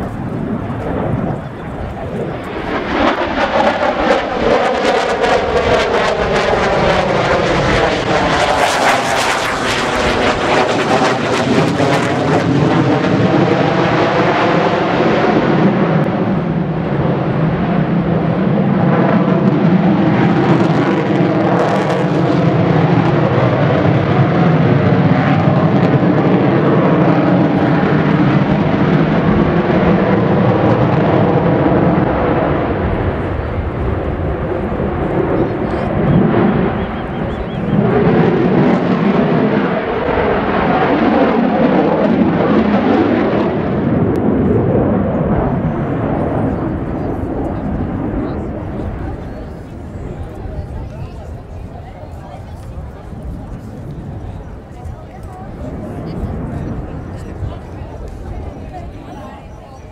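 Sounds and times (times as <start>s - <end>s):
loud jet roar: 0.0s - 59.9s.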